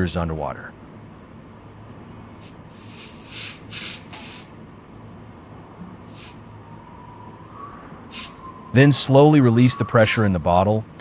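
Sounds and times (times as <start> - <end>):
short bursts of hissing air: 2.4 - 4.6, 6.0 - 6.5, 8.1 - 8.4.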